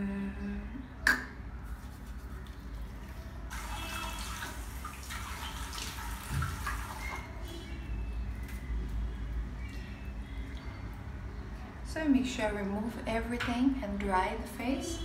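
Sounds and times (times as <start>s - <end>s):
tap water splashing into sink: 3.5s - 7.1s.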